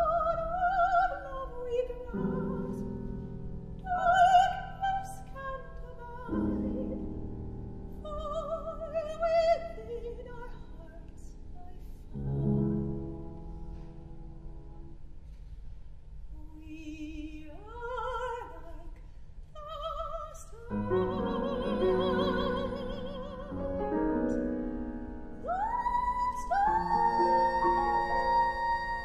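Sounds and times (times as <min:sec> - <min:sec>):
operatic soprano singing: 0:00.0 - 0:02.9, 0:03.8 - 0:07.0, 0:08.0 - 0:12.8, 0:16.4 - 0:24.4, 0:25.3 - 0:29.0
piano chords: 0:00.0 - 0:15.2, 0:20.7 - 0:29.0.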